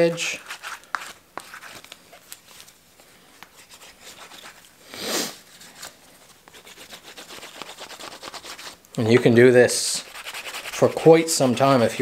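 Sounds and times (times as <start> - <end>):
dowel rubbing on leather edge: 10.0 - 10.9.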